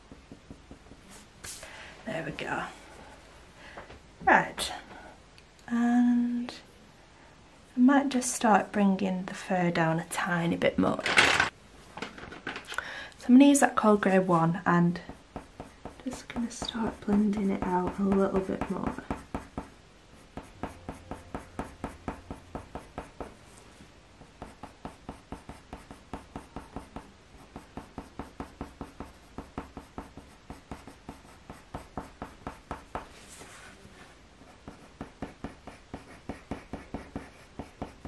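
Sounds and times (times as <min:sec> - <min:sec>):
pencil scratching on paper: 0:15.0 - 0:23.3, 0:24.2 - 0:33.4, 0:34.4 - 0:38.0.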